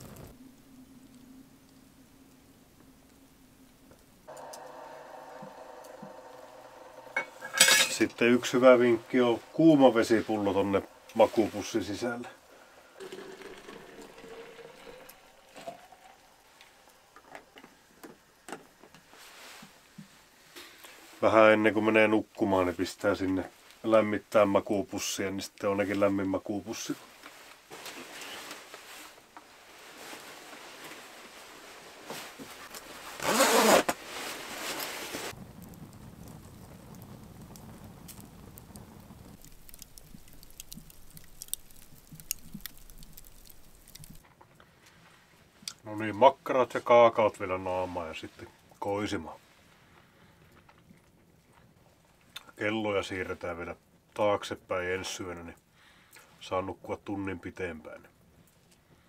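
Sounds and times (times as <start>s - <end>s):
low rush of flames: 0.0s - 33.3s, 33.9s - 44.2s
wood fire crackling: 0.0s - 56.6s
hot water pouring into bottle: 4.3s - 20.0s, 29.7s - 44.2s
sharp pops of burning wood: 34.9s - 44.2s.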